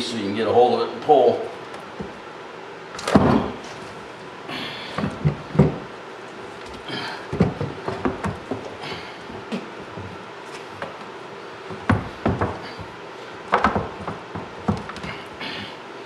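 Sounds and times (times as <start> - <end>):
skull knocking against sink: 11.7 - 12.8.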